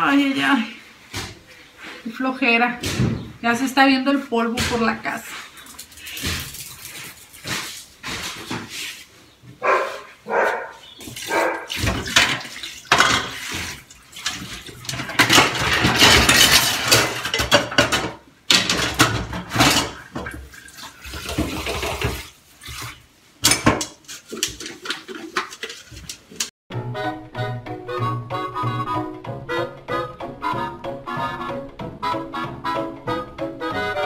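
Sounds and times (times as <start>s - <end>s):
running tap water: 11.0s - 15.4s, 19.6s - 23.1s
dishes clinking and clattering: 11.8s - 22.3s, 23.4s - 26.5s.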